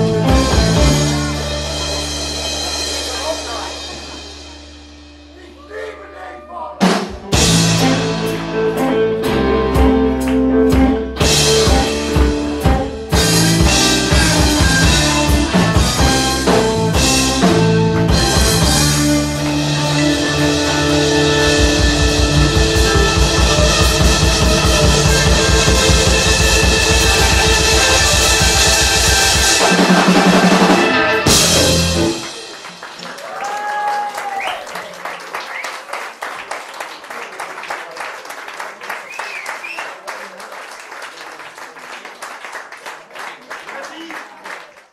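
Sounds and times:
blues-rock band playing: 0.0 - 5.4, 6.8 - 33.3.

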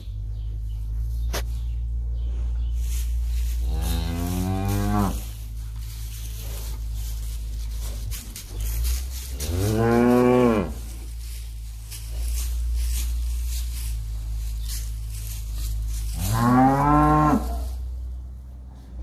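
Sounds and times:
steady low hum: 0.0 - 19.0
cattle mooing: 3.7 - 5.3, 9.4 - 10.8, 16.2 - 17.8.

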